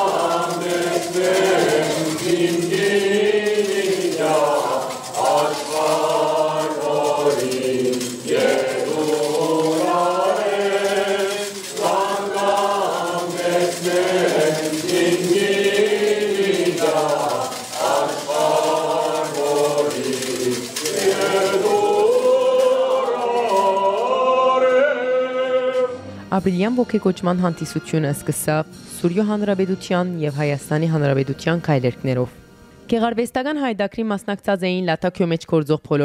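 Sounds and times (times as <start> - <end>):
choir singing a cappella: 0.0 - 26.1.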